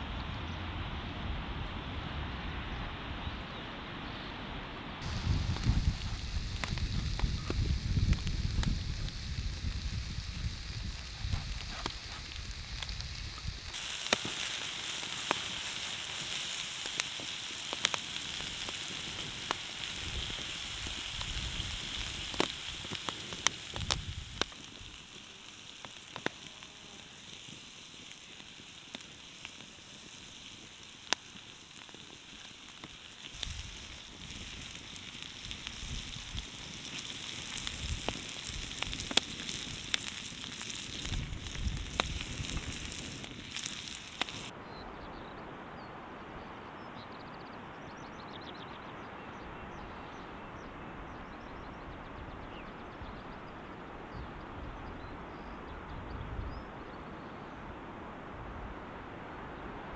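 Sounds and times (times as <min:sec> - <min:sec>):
food sizzling on griddle: 0:05.0 - 0:44.5
fire pops and crackles: 0:05.0 - 0:44.6.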